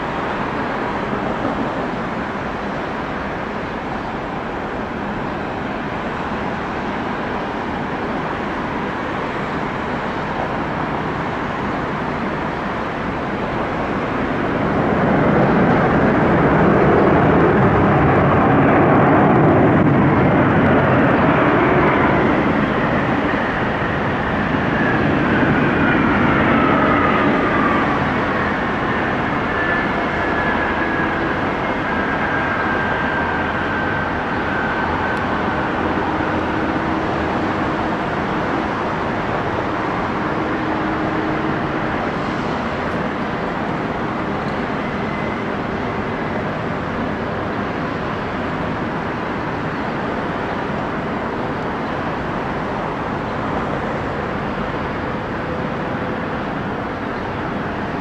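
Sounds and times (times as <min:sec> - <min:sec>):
airplane engines passing: 0:00.0 - 0:58.0
high engine whine: 0:00.0 - 0:58.0.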